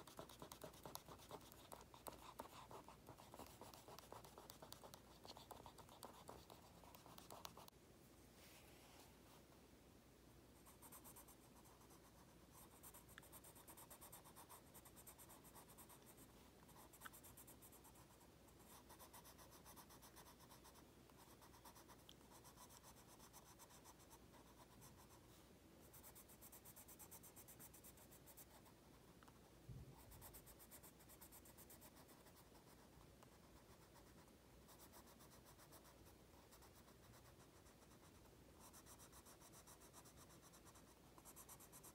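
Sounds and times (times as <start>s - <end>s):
colored pencil scratching paper: 0.0s - 7.7s, 10.6s - 29.4s, 30.0s - 41.9s
pen strokes: 0.0s - 7.7s.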